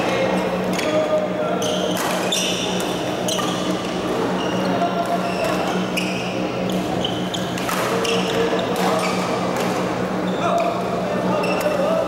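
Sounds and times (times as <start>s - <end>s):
steady low hum: 0.0s - 12.0s
shoes squeaking on court: 1.6s - 9.4s, 10.2s - 11.8s.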